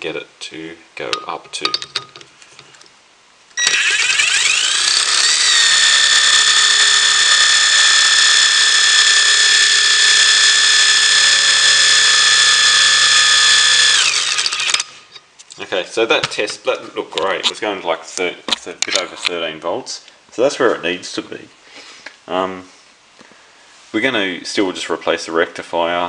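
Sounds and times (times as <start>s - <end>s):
impact driver motor whine: 3.6s - 14.9s.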